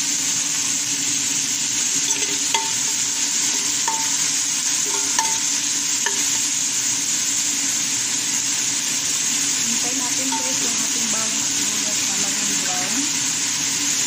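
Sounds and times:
onion sizzling in oil: 0.0s - 14.0s
metal turner clinking on pan: 2.0s - 6.4s, 10.1s - 11.2s.

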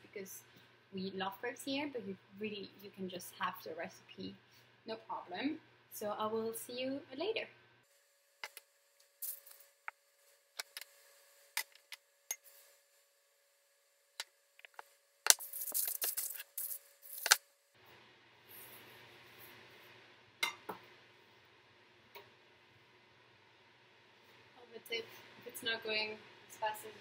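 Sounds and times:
steady hiss: 7.9s - 13.0s, 14.2s - 21.6s.

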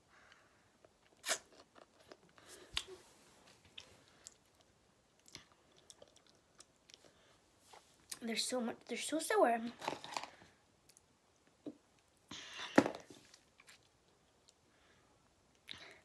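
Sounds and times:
mouth clicks and smacks: 3.7s - 7.1s.

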